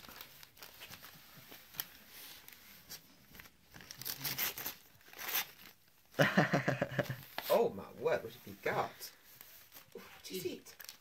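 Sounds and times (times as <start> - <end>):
dog tearing wrapping paper: 3.7 - 5.8.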